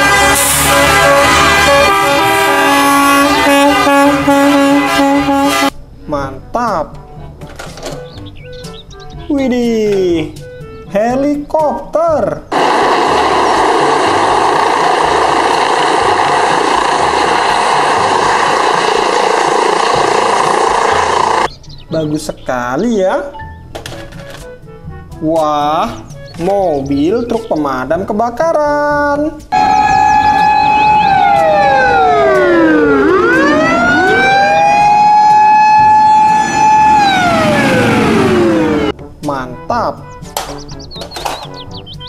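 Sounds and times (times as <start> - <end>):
fire engine siren wailing: 0.0 - 5.7, 12.5 - 21.5, 29.5 - 39.0
faint turbine whine: 12.5 - 21.5
helicopter rotor and turbine noise: 12.5 - 21.5, 29.6 - 38.9.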